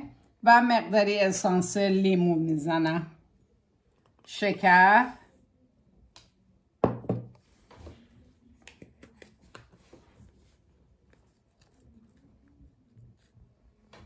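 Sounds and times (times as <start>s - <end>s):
ceramic bowl knocking a pot: 6.8s - 7.3s.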